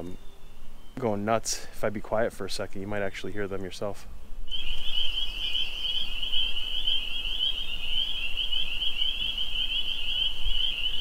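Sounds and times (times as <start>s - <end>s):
chorus of peeping frogs: 4.5s - 11.0s.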